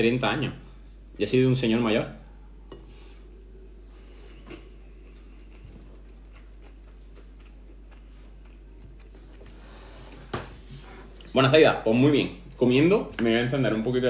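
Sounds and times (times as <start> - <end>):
steady hiss and hum: 0.0 - 14.0
faint chewing clicks: 4.5 - 9.6.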